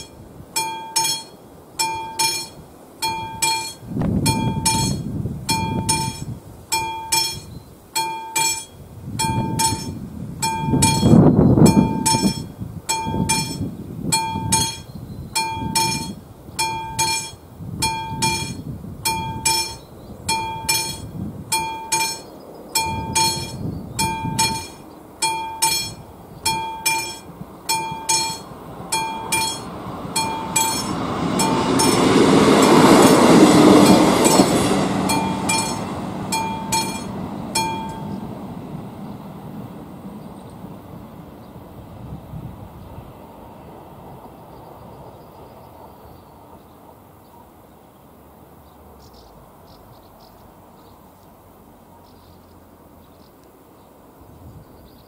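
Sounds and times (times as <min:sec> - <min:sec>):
level-crossing bell ringing: 0:00.0 - 0:38.2
diesel railcar passing: 0:00.0 - 0:55.0.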